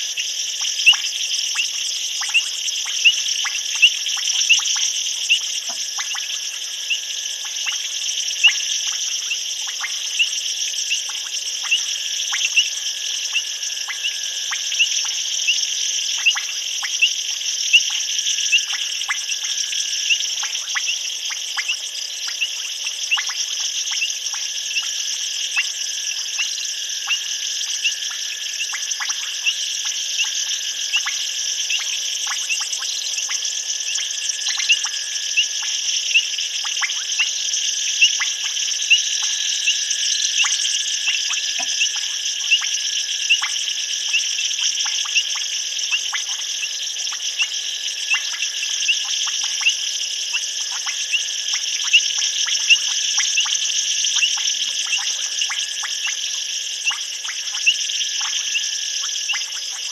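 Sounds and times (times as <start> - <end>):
insects shrilling: 0.0 - 59.9
sharp clicking calls: 38.0 - 42.7, 48.1 - 56.2, 56.8 - 59.9.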